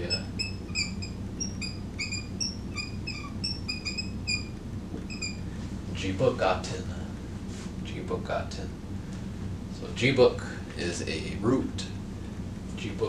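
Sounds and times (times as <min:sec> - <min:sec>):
marker squeaking on whiteboard: 0:00.0 - 0:05.4.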